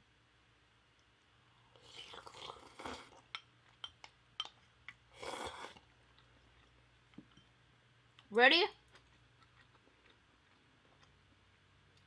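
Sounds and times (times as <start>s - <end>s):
wet chewing clicks: 8.2s - 11.2s.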